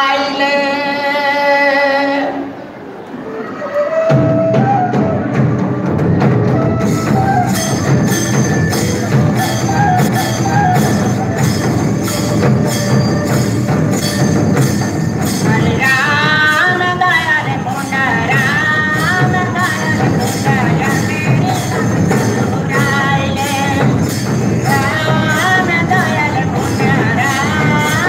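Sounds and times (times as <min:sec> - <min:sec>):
person singing: 0:00.0 - 0:02.5, 0:15.3 - 0:28.0.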